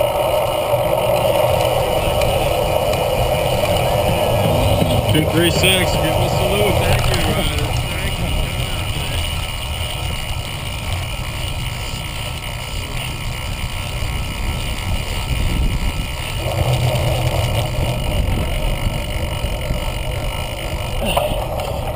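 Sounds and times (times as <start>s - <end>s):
bike rumbling and rattling: 0.0s - 21.9s
wind buffeting microphone: 0.0s - 21.9s.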